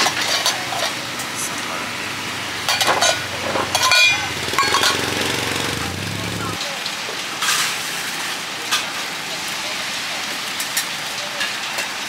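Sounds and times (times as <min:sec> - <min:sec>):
metal lids clinking on bowls: 0:00.0 - 0:01.4, 0:02.7 - 0:05.1
street traffic noise: 0:00.0 - 0:12.0
vehicle engine humming past: 0:01.1 - 0:06.6.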